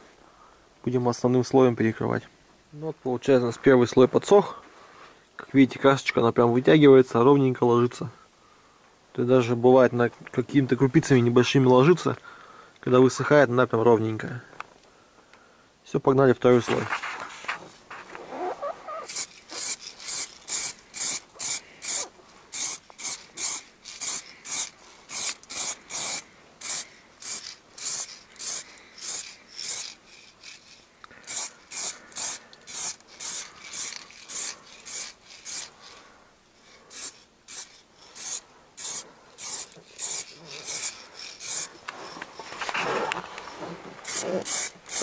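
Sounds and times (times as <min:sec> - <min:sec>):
spray can hissing: 0:18.6 - 0:36.0, 0:36.6 - 0:42.5, 0:44.0 - 0:45.0.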